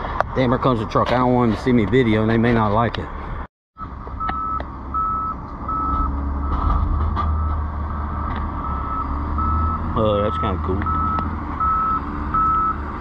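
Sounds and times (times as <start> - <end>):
diesel engine rumble: 0.0 - 13.0
backup alarm beeping: 4.2 - 6.7, 8.6 - 12.8.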